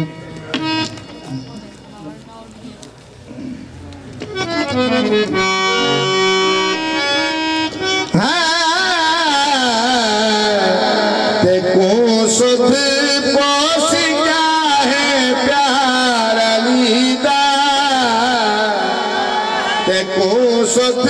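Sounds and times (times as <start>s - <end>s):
harmonium playing held notes: 0.0s - 21.0s
man singing devotional line: 7.8s - 21.0s.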